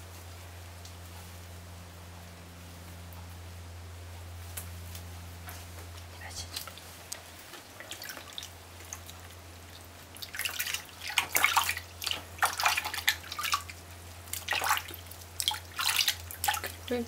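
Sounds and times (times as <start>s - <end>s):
water splashing in a bucket: 7.5s - 17.0s.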